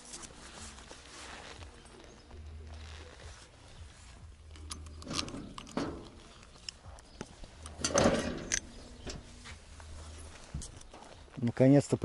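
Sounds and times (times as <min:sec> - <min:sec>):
key turning in padlock: 0:04.5 - 0:09.2
padlock rattling scrape: 0:04.5 - 0:10.9.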